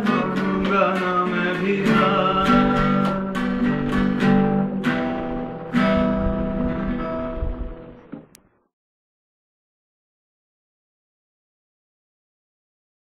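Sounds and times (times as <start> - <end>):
guitars strumming chords: 0.0 - 8.4.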